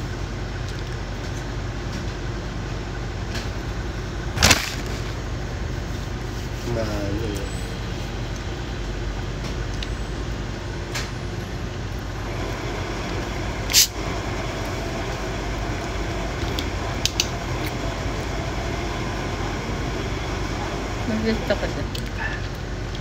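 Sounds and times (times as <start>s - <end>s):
background rumble and hum: 0.0s - 23.0s
loud hiss: 12.6s - 14.4s.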